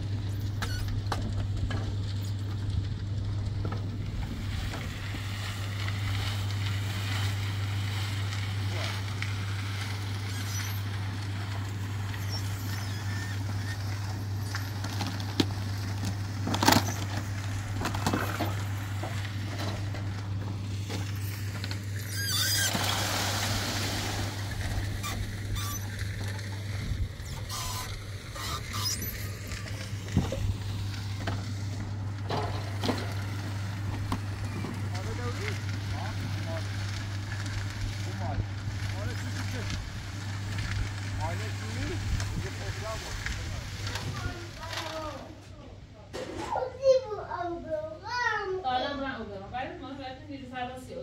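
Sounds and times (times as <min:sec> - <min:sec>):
wet concrete pouring out: 0:00.0 - 0:45.4
concrete mixer humming: 0:00.0 - 0:46.6.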